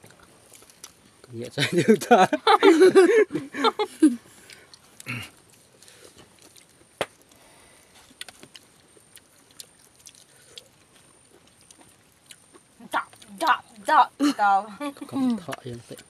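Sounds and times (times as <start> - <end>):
people chewing wet mouth sounds: 0.0 - 2.2, 4.3 - 13.9, 15.1 - 16.0.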